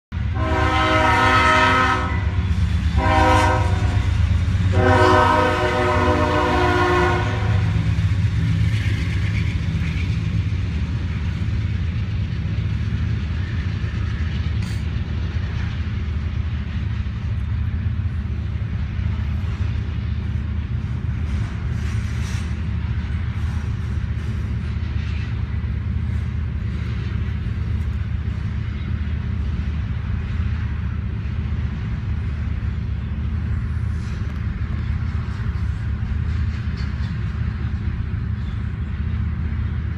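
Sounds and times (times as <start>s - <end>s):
freight train rumbling past: 0.1s - 39.9s
locomotive air horn blasts: 0.3s - 2.4s, 3.0s - 7.8s.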